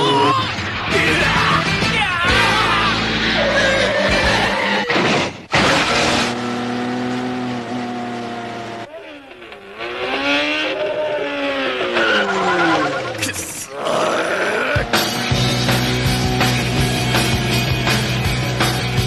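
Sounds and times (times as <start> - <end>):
vehicle engines revving: 5.5 - 19.0.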